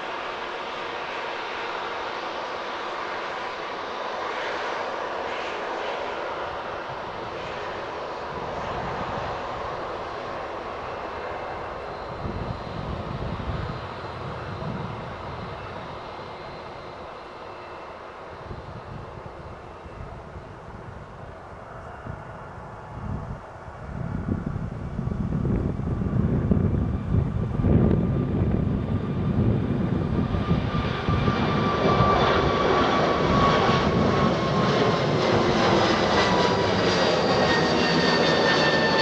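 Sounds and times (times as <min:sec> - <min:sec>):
jet engines running: 0:00.0 - 0:39.0.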